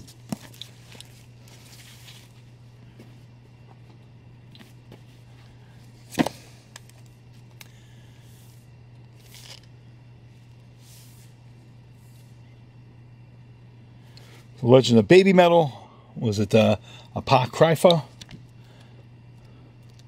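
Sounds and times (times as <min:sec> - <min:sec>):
steady low hum: 0:00.0 - 0:20.0
book knocking on box: 0:06.1 - 0:06.4.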